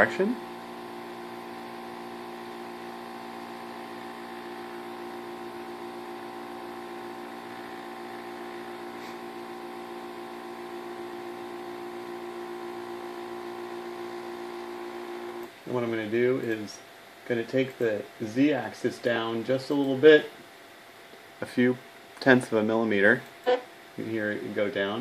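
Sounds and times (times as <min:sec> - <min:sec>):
motor and fan whine: 0:00.0 - 0:16.7
machine hum: 0:00.0 - 0:16.9.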